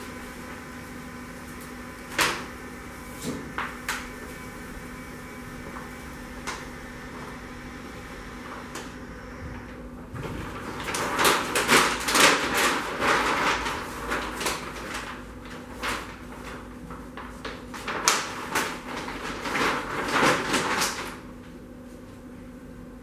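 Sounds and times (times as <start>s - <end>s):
low machine hum: 0.0s - 23.0s
sheet material rustling and scraping: 8.3s - 21.2s.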